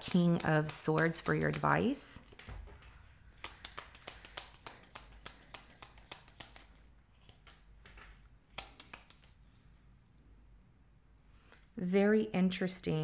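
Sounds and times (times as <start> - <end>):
cards being shuffled: 0.0 - 9.8.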